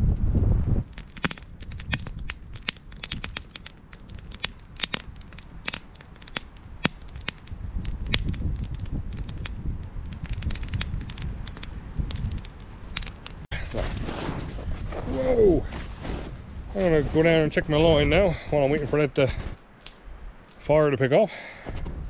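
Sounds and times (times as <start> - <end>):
wind rumbling on microphone: 0.0 - 20.8, 21.6 - 22.0
campfire crackling and popping: 0.8 - 13.5.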